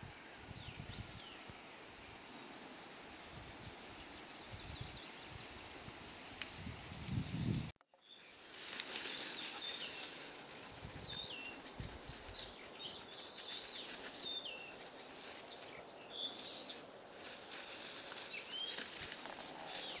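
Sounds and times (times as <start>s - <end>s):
steady outdoor hiss: 0.0s - 20.0s
small birds chirping: 3.2s - 5.9s, 7.2s - 20.0s.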